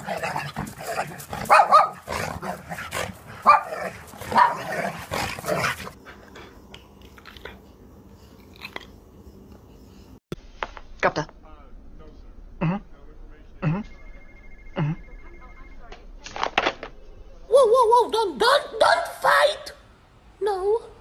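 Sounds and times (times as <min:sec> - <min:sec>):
dog barking: 0:01.1 - 0:02.7, 0:03.4 - 0:05.0.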